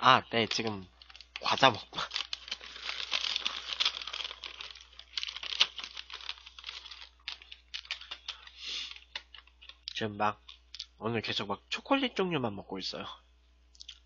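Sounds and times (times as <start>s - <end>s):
snack bag crinkling: 0.4s - 10.9s.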